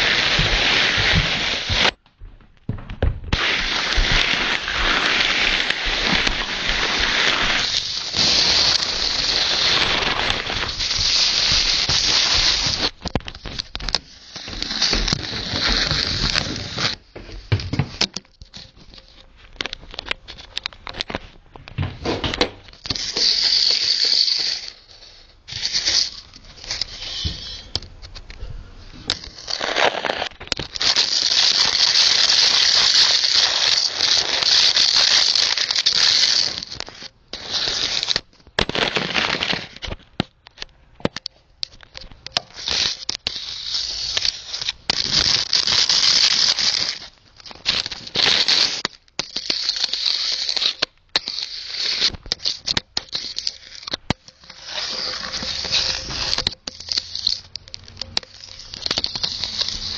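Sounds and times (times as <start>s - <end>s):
camera scraping over floor: 0.0s - 2.0s, 3.3s - 28.1s, 49.6s - 59.9s
clicks and knocks: 17.2s - 22.8s.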